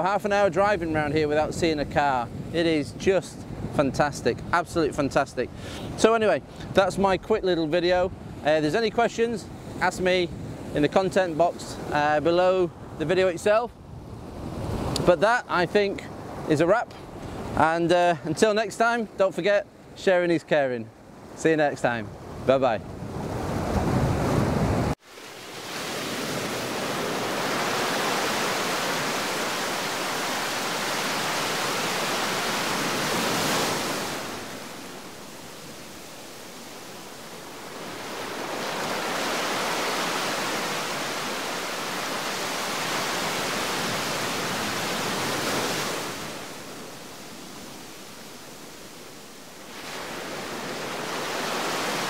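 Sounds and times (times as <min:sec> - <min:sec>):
waves washing on rocky shore: 0:25.1 - 0:52.0.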